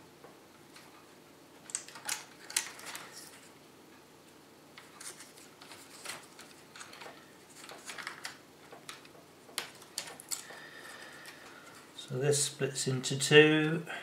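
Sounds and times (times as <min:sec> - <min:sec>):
circuit board being handled: 0:04.8 - 0:10.5.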